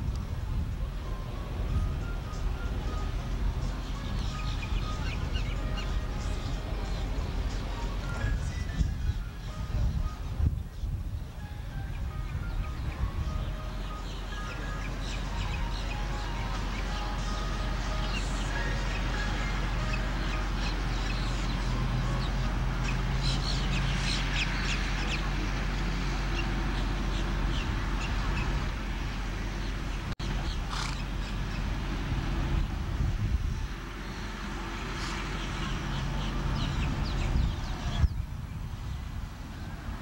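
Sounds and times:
steady low rumble: 0.0s - 40.0s
bird calls: 29.6s - 31.6s.

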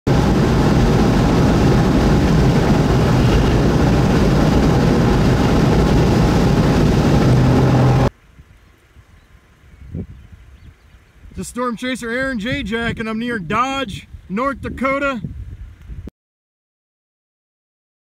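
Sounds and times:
low engine drone: 0.1s - 8.1s
car road noise at highway speed: 0.1s - 8.2s.

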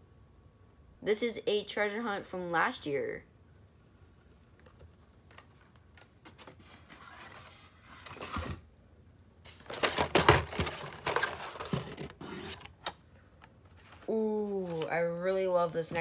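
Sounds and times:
cardboard and plastic packs rustling: 5.2s - 8.7s, 9.5s - 13.0s, 13.6s - 15.1s.

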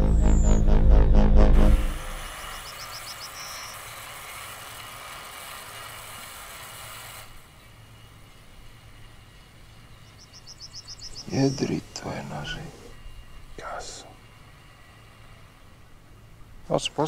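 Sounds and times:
bird trill: 0.0s - 0.7s, 2.4s - 4.0s, 9.5s - 11.8s
airy hiss: 1.6s - 7.5s.

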